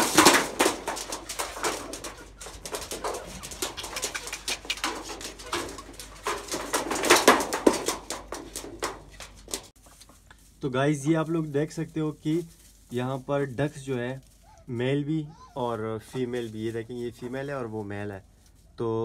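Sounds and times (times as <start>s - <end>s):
sharp taps and scrapes: 0.0s - 10.5s
chickens clucking softly: 1.1s - 6.7s.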